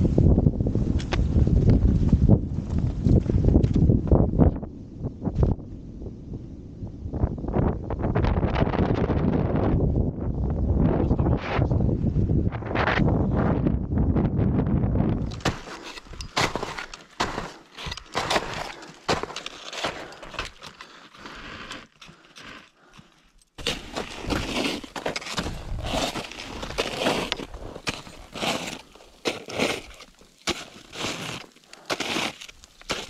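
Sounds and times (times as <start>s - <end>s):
wind buffeting microphone: 0.0s - 16.6s, 25.3s - 28.8s
ski boots crunching snow: 15.2s - 33.0s.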